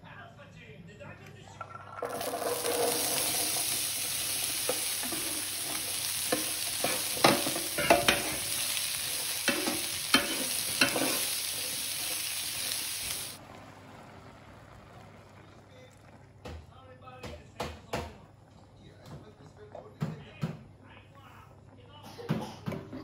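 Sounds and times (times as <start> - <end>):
utensil scraping and knocking pan: 2.0 - 12.2
vegetables sizzling in a pan: 2.0 - 15.3.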